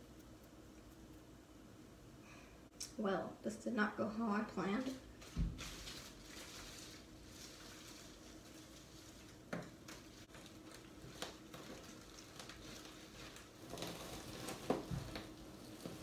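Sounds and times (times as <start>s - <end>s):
soil and leaves rustling: 5.1s - 16.0s.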